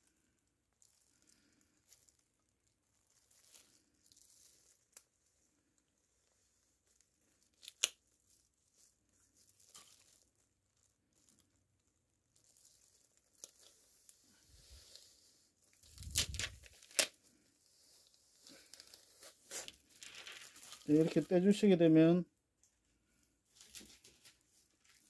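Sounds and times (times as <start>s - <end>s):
plastic film crackling: 0.0s - 21.8s, 23.1s - 25.0s.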